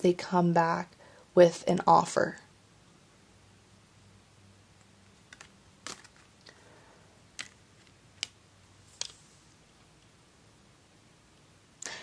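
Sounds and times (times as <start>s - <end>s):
cards clicking on table: 5.2s - 6.3s, 7.4s - 9.3s.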